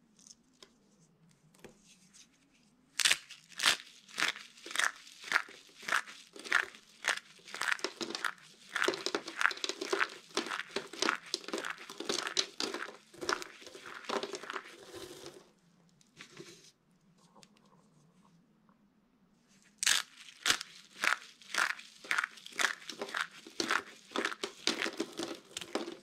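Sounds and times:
dry soap crunching in hands: 3.0s - 15.4s, 19.8s - 26.0s.

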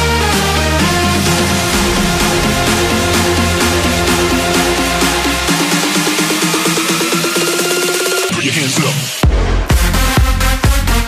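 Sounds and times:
deep bass: 0.0s - 7.7s.

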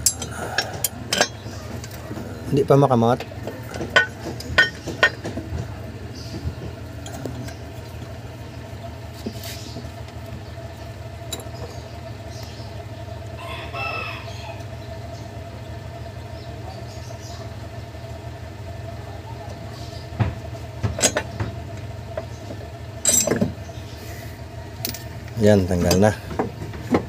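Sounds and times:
steady low hum: 0.0s - 27.0s
rooster crowing: 13.3s - 14.8s.

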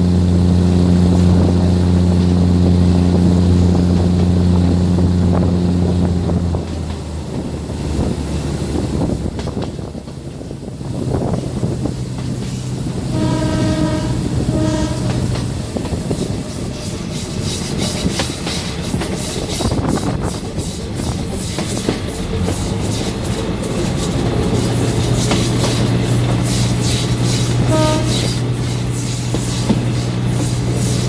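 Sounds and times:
low engine hum: 0.0s - 16.8s
train wheels clacking over rail joints: 2.1s - 31.0s
train horn blast: 12.8s - 15.8s, 27.3s - 29.0s.

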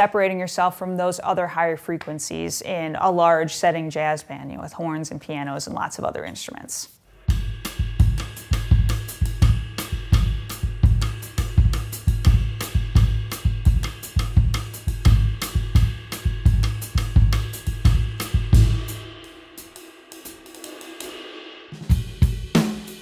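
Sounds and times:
bass drum beats: 7.2s - 19.7s, 21.9s - 23.0s
ride cymbal pattern: 7.2s - 23.0s.

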